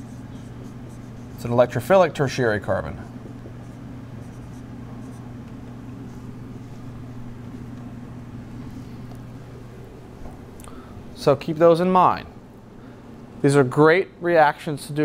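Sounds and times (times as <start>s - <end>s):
marker scratching on whiteboard: 0.0s - 1.8s, 3.1s - 5.3s
steady low hum: 0.0s - 15.0s.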